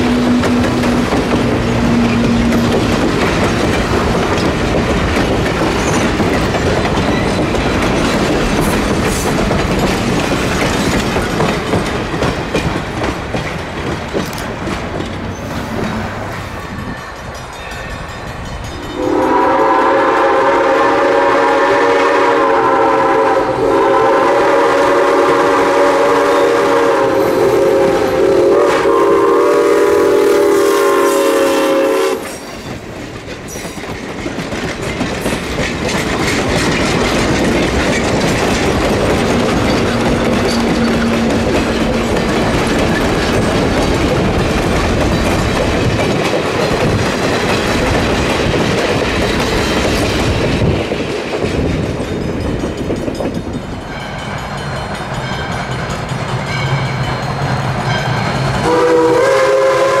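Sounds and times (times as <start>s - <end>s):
steam locomotive whistle: 0.0s - 2.8s, 18.8s - 32.6s, 57.9s - 60.0s
train coaches clacking over rail joints: 0.0s - 60.0s.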